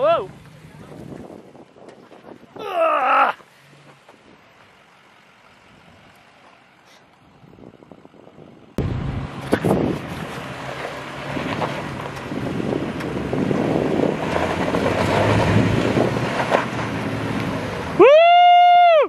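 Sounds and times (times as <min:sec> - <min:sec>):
truck engine under load: 0:00.0 - 0:18.1
wind buffeting microphone: 0:00.3 - 0:02.7, 0:07.3 - 0:17.2.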